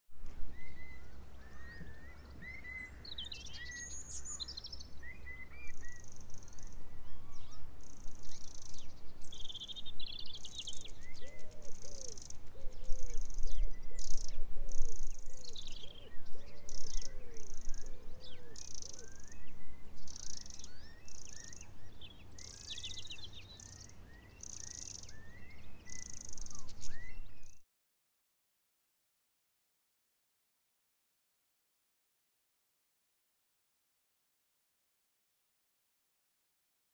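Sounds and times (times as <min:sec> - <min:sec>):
songbirds chirping: 0:00.2 - 0:27.6.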